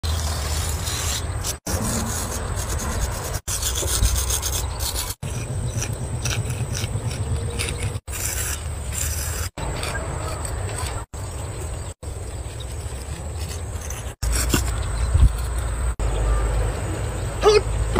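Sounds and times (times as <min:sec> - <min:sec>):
chalk scraping on concrete: 0:00.0 - 0:11.1.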